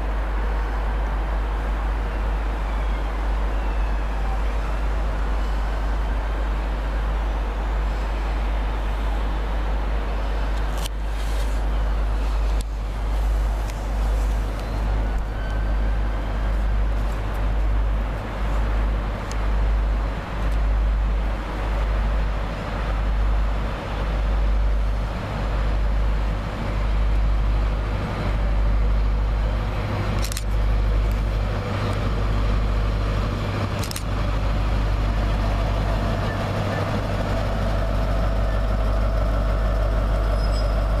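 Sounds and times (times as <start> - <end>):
diesel train engine: 0.0 - 41.0
sharp clicks: 30.2 - 31.2, 33.8 - 34.1.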